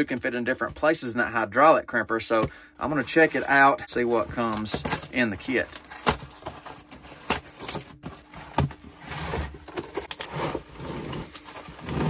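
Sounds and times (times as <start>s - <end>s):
rustling and scraping: 2.4s - 12.0s.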